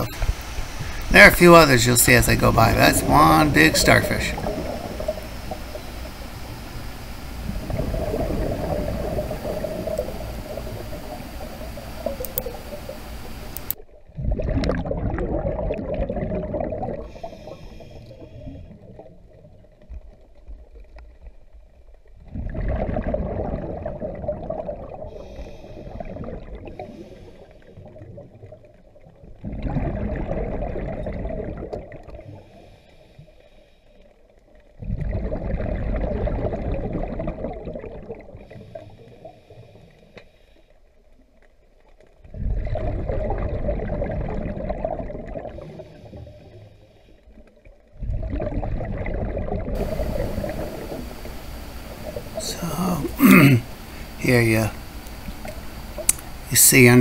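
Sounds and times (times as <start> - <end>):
exhaled bubbles gurgling underwater: 0.0 - 40.2, 41.0 - 54.2
regulator hissing inhalations: 17.1 - 18.4, 25.2 - 26.0.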